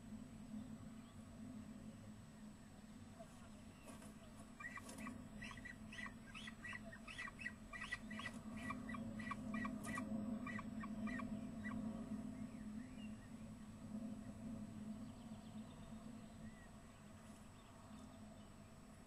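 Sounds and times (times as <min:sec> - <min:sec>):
steady low hum: 0:00.0 - 0:19.0
falcon chipping calls: 0:04.6 - 0:11.3.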